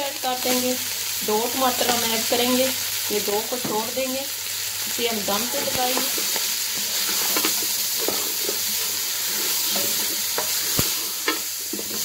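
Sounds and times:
food frying in oil: 0:00.0 - 0:12.0
spatula scraping a pan: 0:05.4 - 0:12.0.

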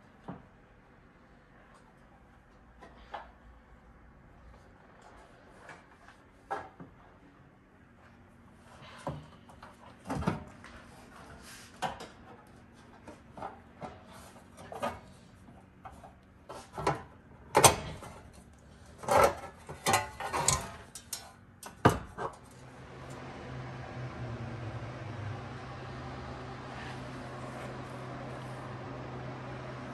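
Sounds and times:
parts clicking and clattering: 0:18.9 - 0:23.2.

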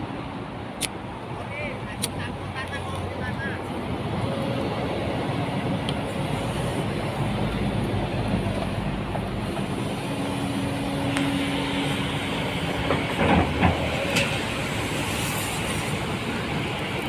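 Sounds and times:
excavator diesel engine running: 0:03.8 - 0:17.0.

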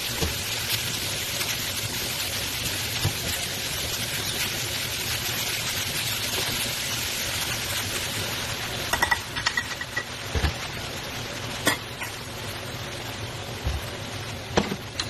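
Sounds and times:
food sizzling in a wok: 0:00.0 - 0:15.0
metal cup clinking against pan: 0:08.9 - 0:10.1.

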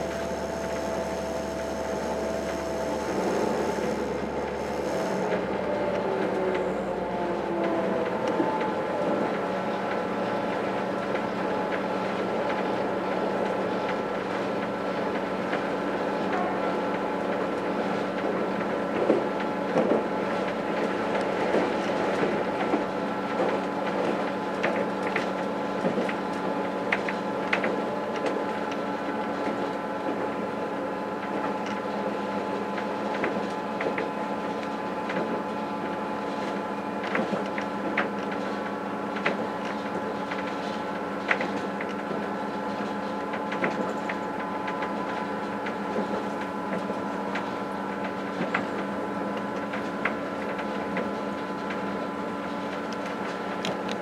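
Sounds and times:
whining tones: 0:00.0 - 0:10.0
train interior hum: 0:00.0 - 0:54.0.

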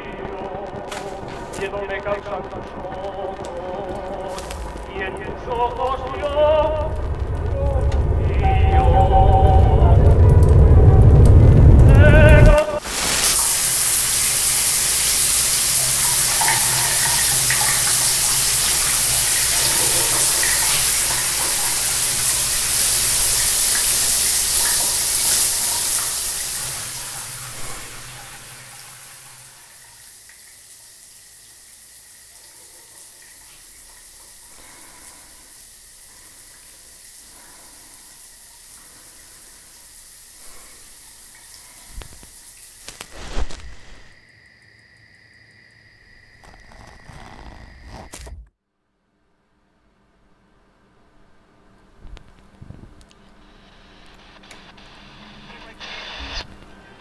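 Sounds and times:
low hum: 0:00.0 - 0:12.8
water running into bathtub: 0:00.0 - 0:48.1.

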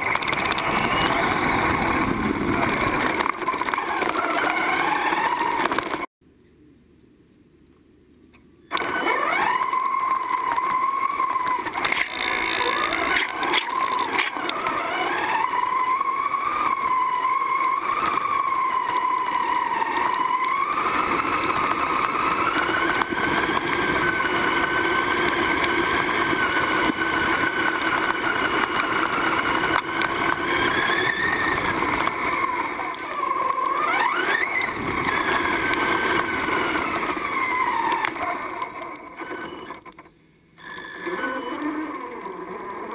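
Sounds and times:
rc car motor whine: 0:00.0 - 0:06.1, 0:08.7 - 0:42.9.

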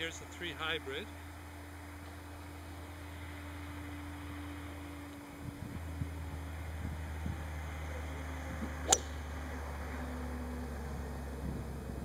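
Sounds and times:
steady low hum: 0:00.0 - 0:12.0
golf club striking ball: 0:08.8 - 0:09.3.

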